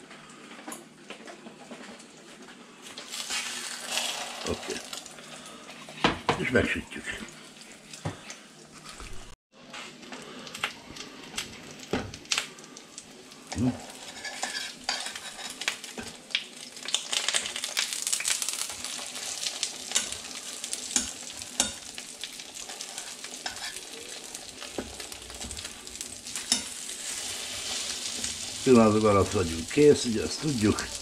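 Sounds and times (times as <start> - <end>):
bread sizzling in oil: 1.6 - 31.0
oil spitting and crackling: 3.0 - 6.0.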